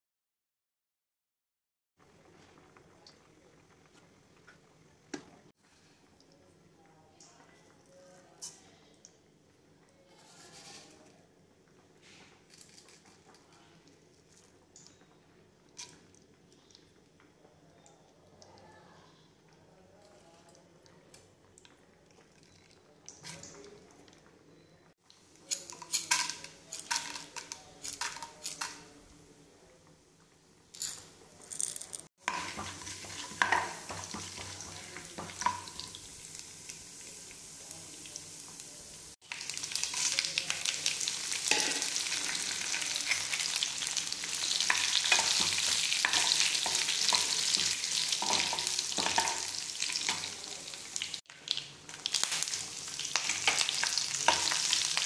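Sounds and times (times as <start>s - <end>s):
seeds crackling and popping: 19.9s - 28.8s, 30.7s - 55.0s
steel spoon stirring: 25.4s - 28.8s, 30.7s - 36.0s, 41.3s - 50.5s
sizzling in hot oil: 31.8s - 55.0s.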